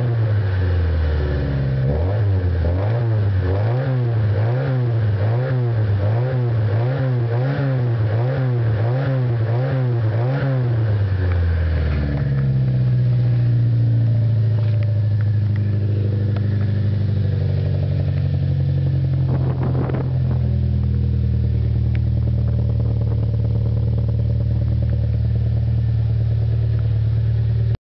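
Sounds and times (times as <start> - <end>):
car engine revving: 0.0 - 27.8.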